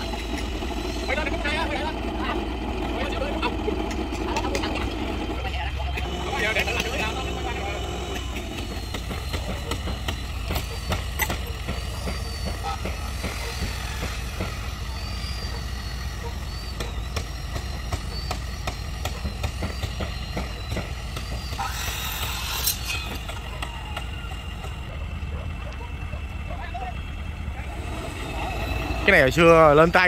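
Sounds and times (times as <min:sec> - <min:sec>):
truck engine running: 0:00.0 - 0:30.0
knocks and clatter of work: 0:08.0 - 0:14.6, 0:16.8 - 0:25.0.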